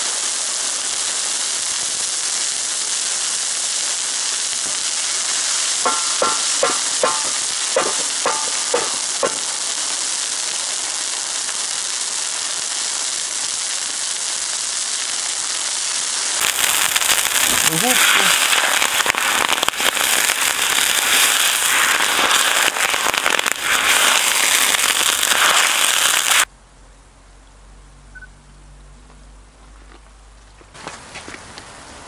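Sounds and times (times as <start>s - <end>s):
oil sizzling on hot griddle: 0.0s - 26.5s
short high-pitched pings: 28.2s - 28.4s.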